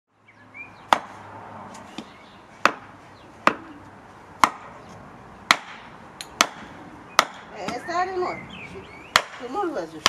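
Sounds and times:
sharp chopping strikes: 0:00.9 - 0:01.2, 0:02.0 - 0:03.7, 0:04.4 - 0:04.8, 0:05.5 - 0:07.5, 0:09.1 - 0:09.5.

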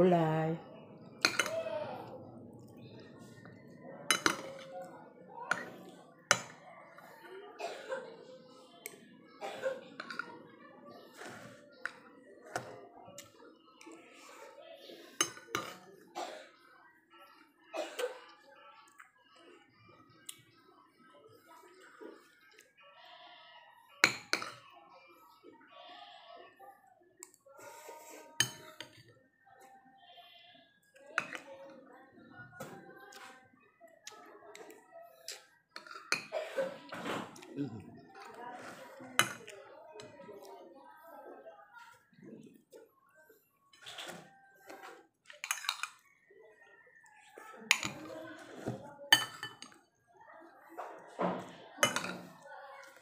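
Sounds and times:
metal spoon clinking on plate: 0:01.2 - 0:01.5, 0:04.1 - 0:04.6, 0:45.4 - 0:46.0, 0:49.1 - 0:49.7.

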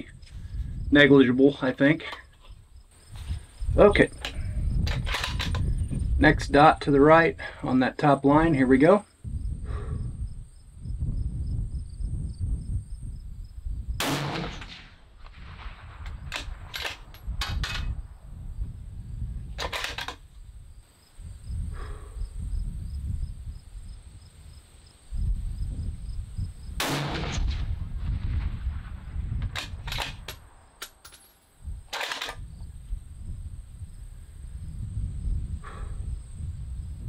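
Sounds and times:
rifle shots: 0:14.0 - 0:18.0, 0:19.6 - 0:20.2, 0:26.8 - 0:31.0, 0:31.9 - 0:32.4
low rumble: 0:26.8 - 0:29.6.

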